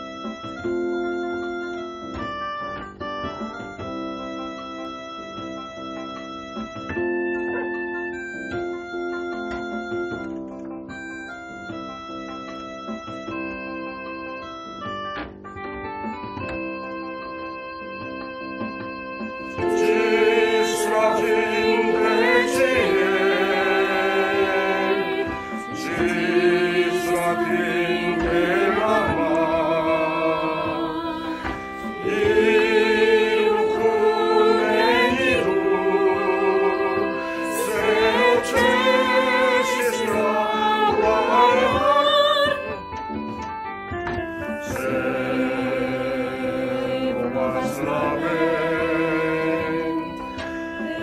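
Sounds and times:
instrumental accompaniment: 0.0 - 51.0
mixed choir singing: 19.5 - 42.9, 44.6 - 51.0.

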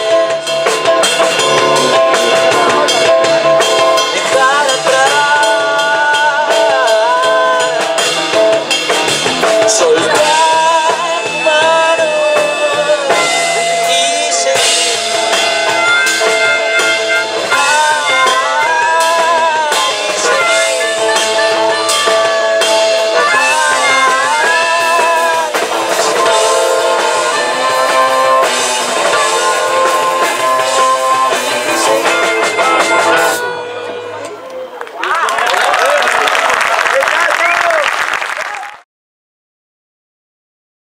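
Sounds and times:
person singing: 0.0 - 8.1, 9.5 - 16.4, 17.4 - 33.6
drum kit: 0.0 - 33.6
acoustic guitar: 0.0 - 34.4.

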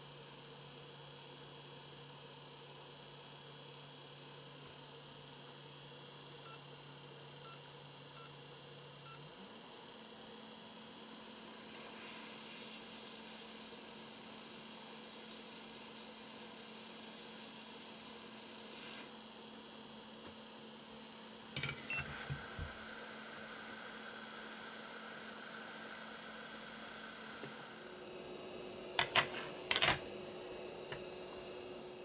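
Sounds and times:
hot-air station hum and hiss: 0.0 - 32.0.

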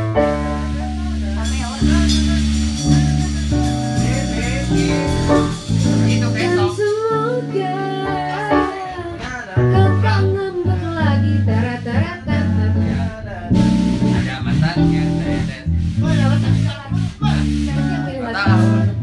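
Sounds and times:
instrumental accompaniment: 0.0 - 19.0
woman singing: 6.4 - 13.9, 17.7 - 19.0.

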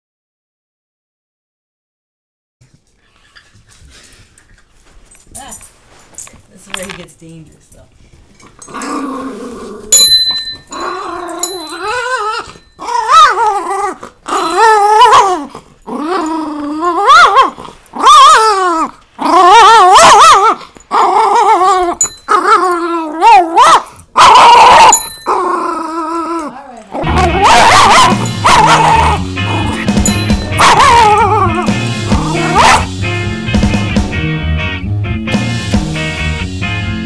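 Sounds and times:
dog growling and barking: 8.6 - 10.0, 10.7 - 33.0
small bell ringing: 9.9 - 12.9, 22.0 - 22.4, 24.9 - 25.4, 30.0 - 30.6.

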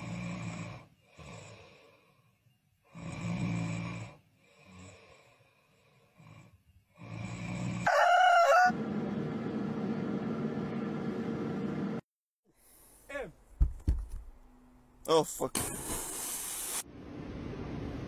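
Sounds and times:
person snoring: 0.0 - 7.9
rooster crowing: 7.8 - 8.8
steady whirring noise: 8.7 - 12.0.

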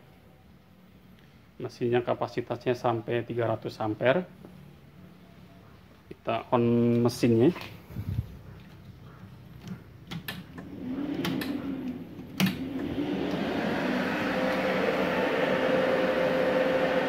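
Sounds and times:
cooling fan spinning: 9.6 - 17.0.

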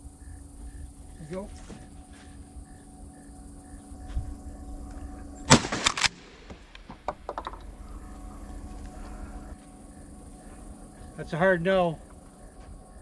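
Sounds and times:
shotgun bangs: 5.5 - 6.2.

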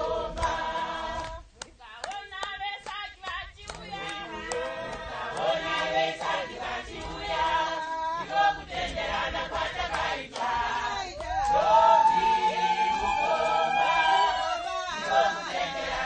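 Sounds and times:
choir singing: 0.0 - 1.5, 3.7 - 16.0.

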